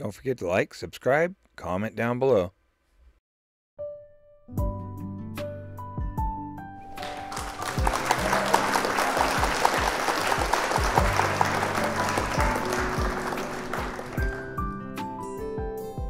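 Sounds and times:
background music with steady beat: 4.5s - 16.0s
applause: 7.0s - 14.8s.

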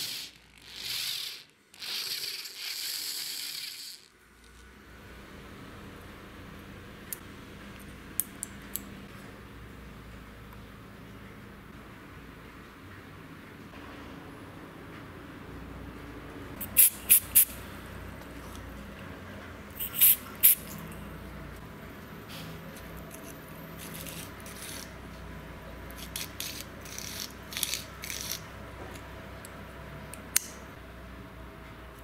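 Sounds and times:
metal parts clicking on threaded rod: 29.4s - 30.6s.

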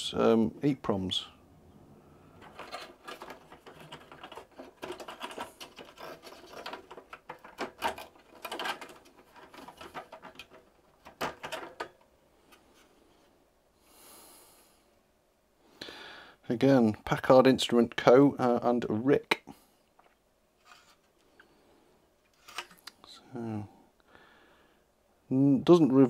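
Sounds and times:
circuit cards clicking and scraping: 2.4s - 11.9s.

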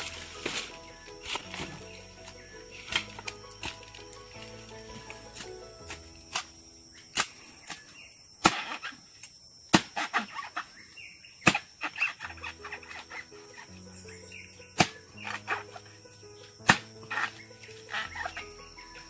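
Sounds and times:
machete chopping stalks: 0.0s - 4.1s, 5.0s - 10.7s, 11.4s - 13.1s, 14.8s - 15.7s, 16.6s - 18.4s
leaves and stems crackling: 0.0s - 19.0s.

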